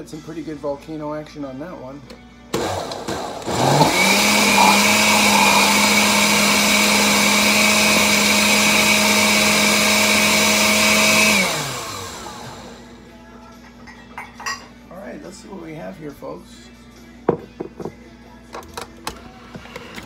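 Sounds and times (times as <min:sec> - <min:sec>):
blender motor whining: 0:02.6 - 0:12.9.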